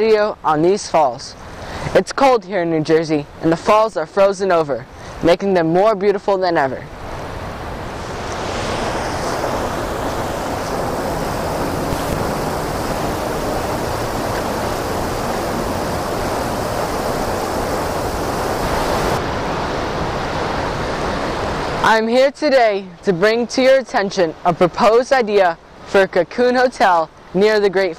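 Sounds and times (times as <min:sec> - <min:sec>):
waterfall rushing: 0:07.0 - 0:22.0.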